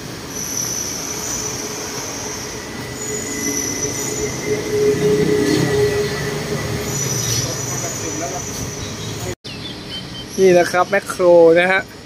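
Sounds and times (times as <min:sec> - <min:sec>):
monorail train electric whine: 0:00.0 - 0:09.4
street noise: 0:00.0 - 0:12.0.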